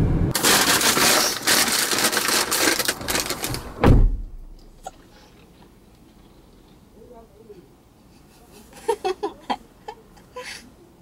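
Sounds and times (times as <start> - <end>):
rustling and crunching: 0.3 - 6.9
car door shutting: 3.8 - 4.6.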